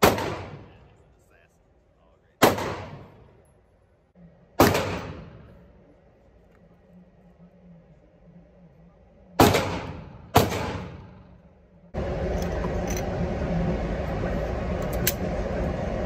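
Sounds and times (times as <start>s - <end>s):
gunshots echoing indoors: 0.0s - 1.0s, 2.4s - 3.3s, 4.5s - 5.7s, 9.4s - 11.4s
loud steady rushing noise: 7.6s - 16.0s.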